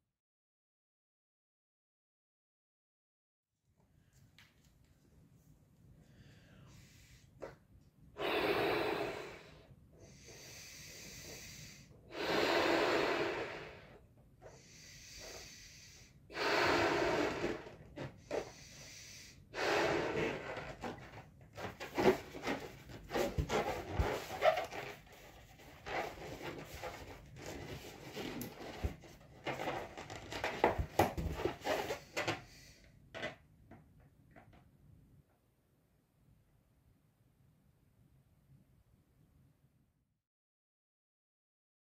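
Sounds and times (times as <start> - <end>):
in-breaths: 6.0 - 7.6, 8.2 - 20.6, 31.0 - 33.0
breathy blows into balloon: 8.2 - 21.0, 21.7 - 29.0
balloon rubber crackling squeaks: 19.8 - 32.1.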